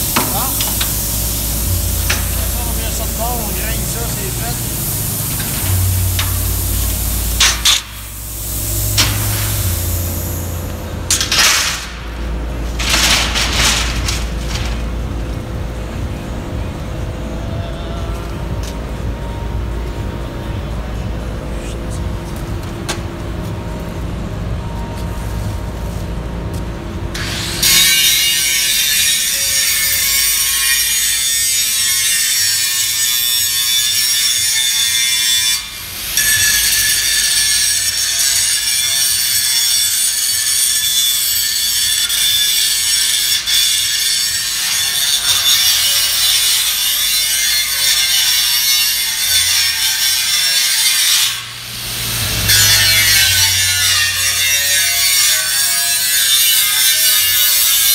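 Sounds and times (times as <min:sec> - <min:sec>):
angle grinder grinding steel: 0:27.2 - 0:57.9.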